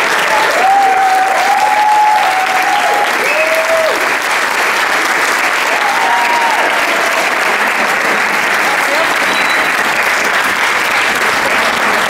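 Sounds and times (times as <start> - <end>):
audience applauding: 0.0 - 12.0
voices calling from crowd: 5.8 - 10.2.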